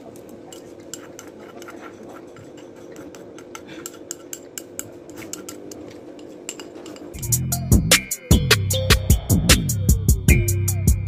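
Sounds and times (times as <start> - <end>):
cutlery clinking on dishware: 0.1 - 7.2.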